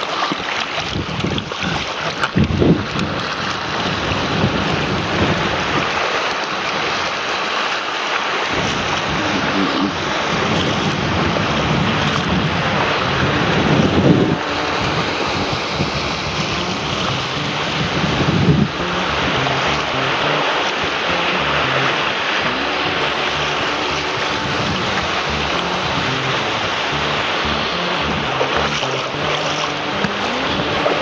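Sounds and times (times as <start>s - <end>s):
waves washing over rocks: 0.0s - 31.0s
wind buffeting microphone: 0.6s - 7.1s, 8.5s - 31.0s.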